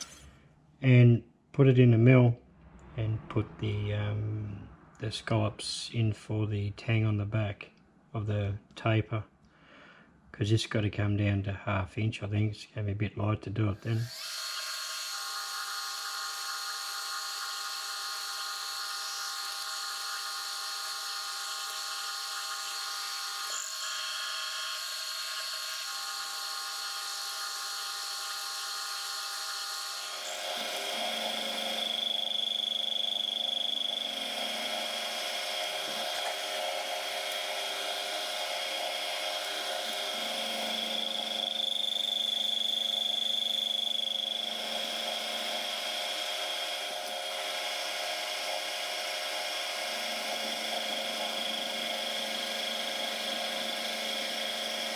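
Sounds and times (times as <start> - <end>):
cutter milling steel: 0.0 - 0.3, 13.8 - 54.9
milling machine whine: 13.9 - 54.9.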